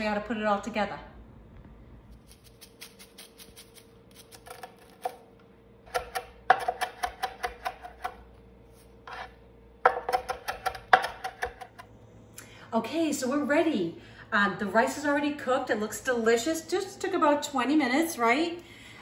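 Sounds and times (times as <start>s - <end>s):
knife chopping on wooden board: 5.9s - 8.2s, 9.1s - 11.8s.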